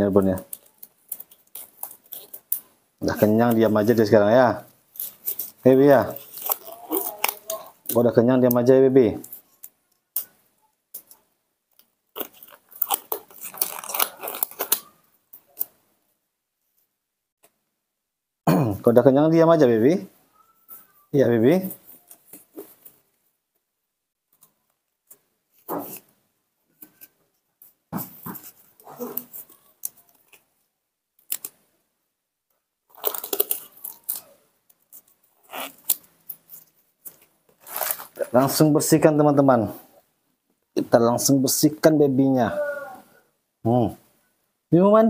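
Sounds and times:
rubber glove crinkling: 0:00.2 - 0:15.8, 0:24.3 - 0:31.7, 0:32.9 - 0:39.0
baby monkey whimpering: 0:42.4 - 0:43.2.

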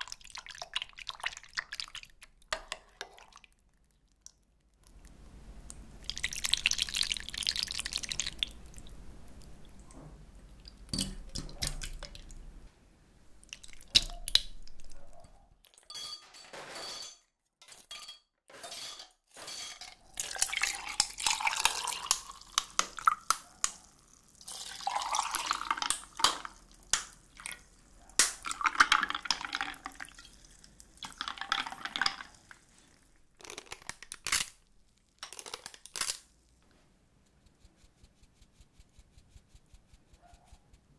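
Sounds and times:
syrup dripping and splashing: 0:00.0 - 0:05.1, 0:05.7 - 0:09.8, 0:10.5 - 0:12.4, 0:13.4 - 0:15.0, 0:20.1 - 0:36.3
milk pouring over ice: 0:06.0 - 0:08.9, 0:20.1 - 0:27.8, 0:28.4 - 0:33.9.

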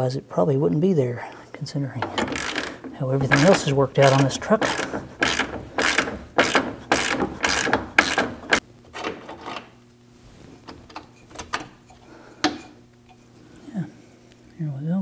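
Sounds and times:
ratchet wrench clicking: 0:02.1 - 0:08.6.

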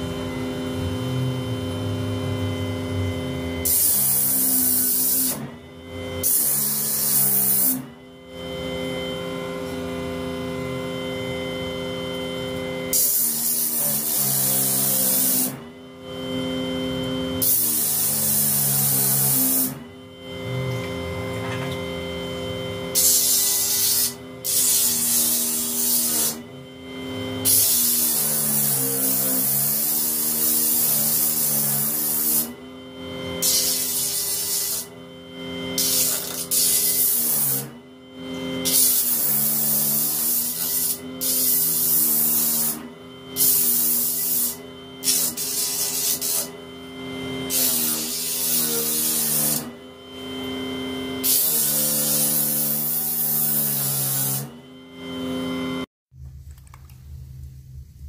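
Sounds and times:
disc sander motor hum: 0:00.0 - 0:52.2
wood on sandpaper hiss: 0:43.4 - 0:46.5.

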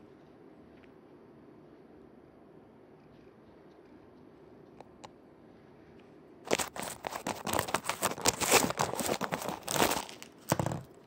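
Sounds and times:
cat scraping and crinkling a tube: 0:06.5 - 0:11.0.

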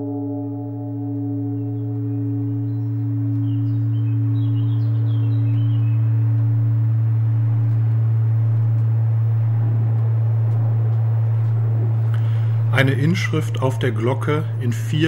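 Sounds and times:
large temple bell ringing: 0:00.0 - 0:10.3.

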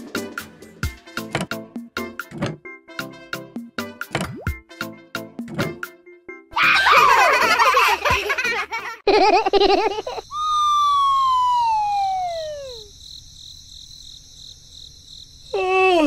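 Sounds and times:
cartoon wobbling warble: 0:10.3 - 0:12.9
falling cartoon whistle: 0:10.3 - 0:12.9.

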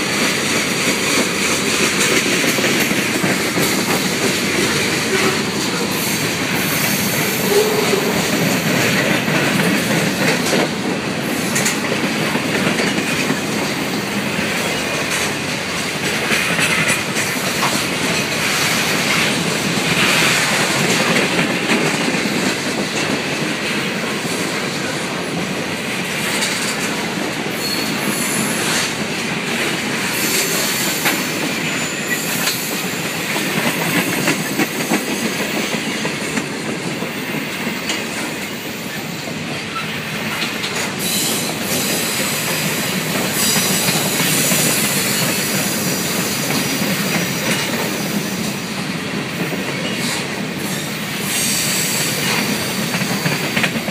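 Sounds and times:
train wheels rolling on rails: 0:00.0 - 0:53.9
wheels clacking over rail joints: 0:00.0 - 0:53.9
high wheel squeal: 0:27.6 - 0:28.8, 0:30.2 - 0:32.8.

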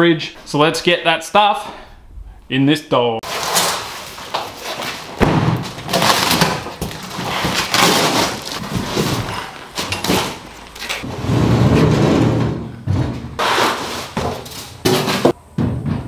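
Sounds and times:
cardboard rustling and ripping: 0:03.2 - 0:11.1
heavy thuds of box: 0:05.0 - 0:09.4.

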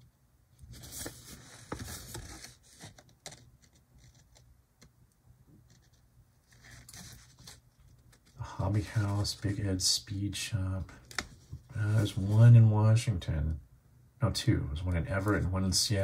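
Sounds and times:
paper rustling and crinkling: 0:00.7 - 0:04.4, 0:05.7 - 0:09.6.

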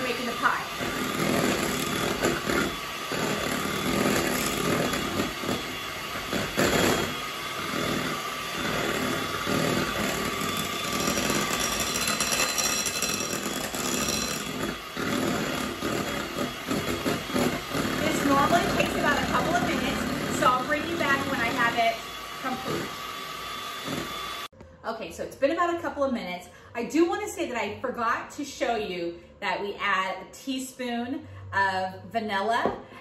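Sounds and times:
electric mixer whipping cream: 0:00.0 - 0:24.5.

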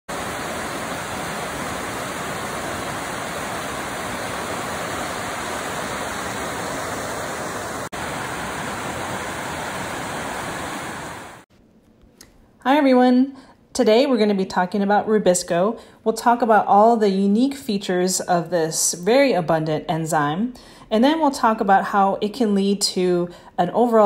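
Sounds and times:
stream rushing over rocks: 0:00.1 - 0:11.4.

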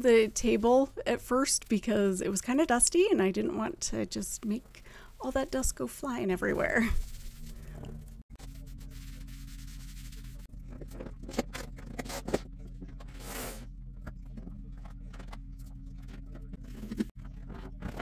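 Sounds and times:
cloth wiping a tabletop: 0:08.4 - 0:10.5.

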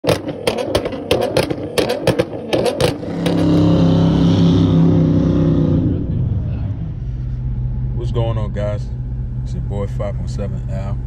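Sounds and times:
exhaust popping and banging: 0:00.0 - 0:06.6
engine at high revs: 0:00.0 - 0:06.8.

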